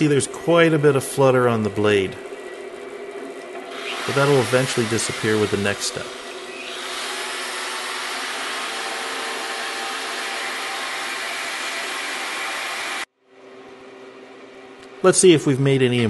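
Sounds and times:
die grinder grinding hiss: 0:03.7 - 0:13.1.

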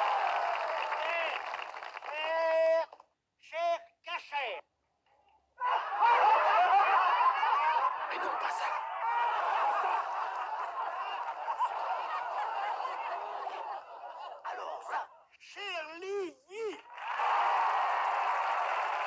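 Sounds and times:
crowd laughing: 0:05.6 - 0:14.9.

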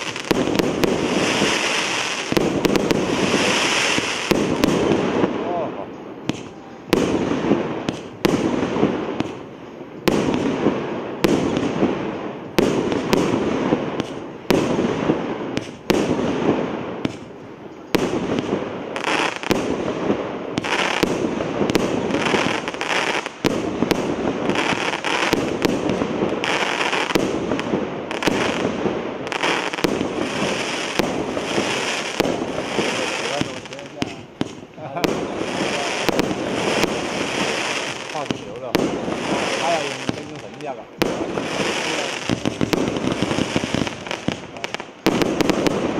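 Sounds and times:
exploding firework effects: 0:00.0 - 0:45.9
firework launch thumps and bursts: 0:17.0 - 0:17.3.

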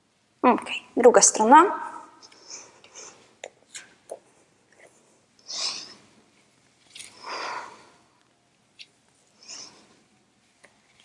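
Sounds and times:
woman breathing: 0:05.4 - 0:06.3, 0:07.0 - 0:08.3, 0:09.3 - 0:10.1.

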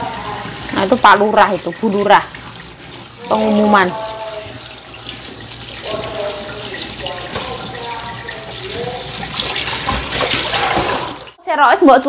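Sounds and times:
distant loudspeaker voice: 0:03.2 - 0:04.6, 0:05.8 - 0:09.3
tap running into steel sink: 0:05.9 - 0:11.2.

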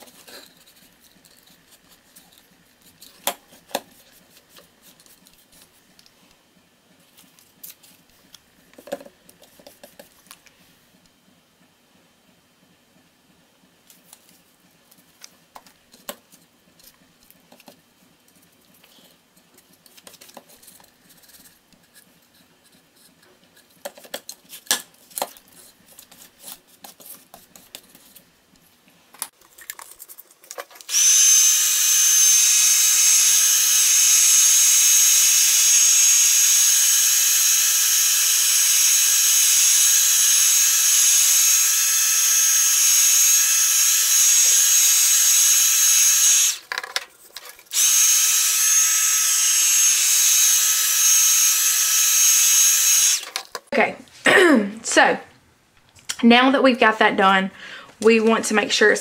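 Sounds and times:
heat gun whine and air rush: 0:30.9 - 0:46.6, 0:47.7 - 0:53.3.

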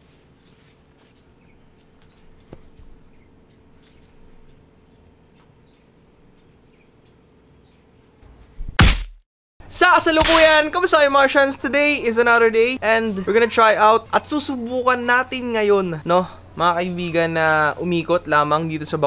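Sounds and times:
small birds chirping: 0:00.4 - 0:08.6.

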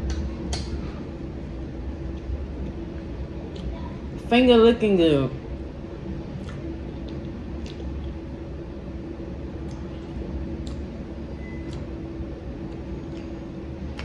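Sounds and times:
low room hum: 0:00.0 - 0:14.0
chewing: 0:06.4 - 0:08.2, 0:09.6 - 0:10.9.

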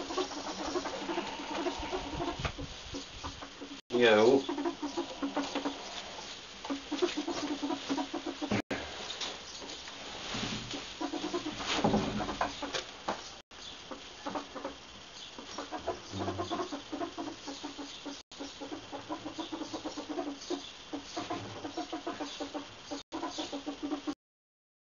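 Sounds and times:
ferrets dooking: 0:00.0 - 0:09.3, 0:13.8 - 0:24.2.

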